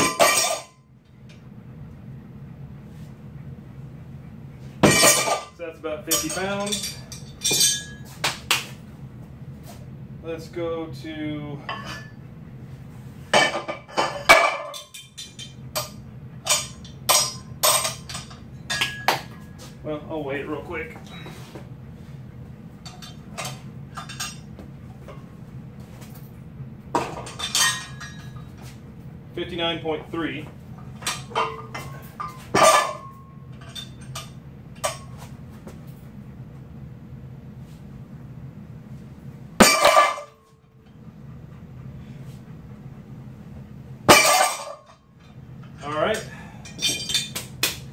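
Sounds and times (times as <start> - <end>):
metal plate clanking: 0.0 - 0.7, 4.8 - 8.1, 39.6 - 40.4, 44.1 - 44.9
metal weights clinking: 4.9 - 8.2, 27.2 - 28.5, 31.0 - 35.2, 44.1 - 45.0, 45.7 - 47.4.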